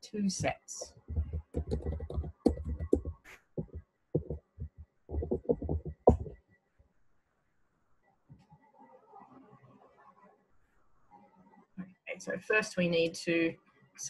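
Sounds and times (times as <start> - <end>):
computer keyboard typing: 0.8 - 6.4.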